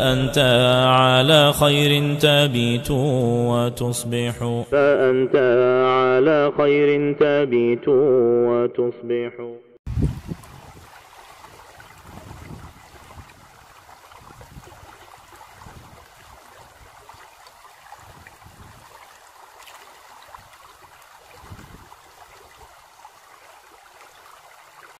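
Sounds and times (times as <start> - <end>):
running water: 9.9 - 25.0.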